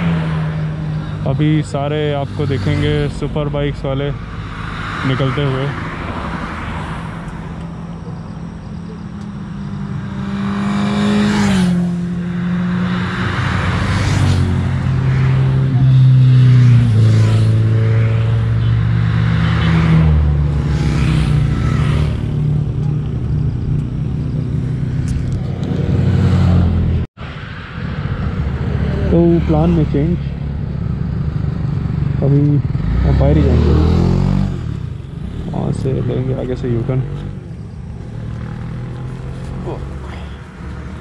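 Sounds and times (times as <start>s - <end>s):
motorcycles passing at speed: 0.0s - 41.0s.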